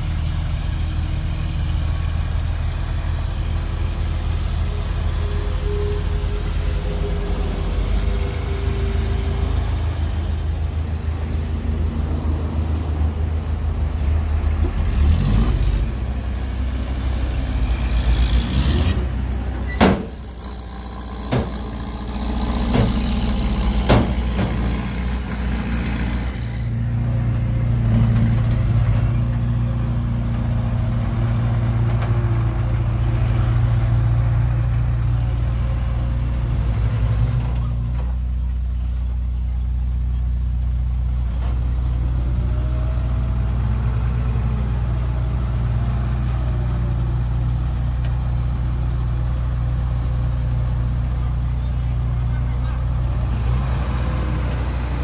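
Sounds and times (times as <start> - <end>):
diesel engine running: 0.0 - 55.0
sharp knocks: 21.2 - 21.8, 22.4 - 24.9.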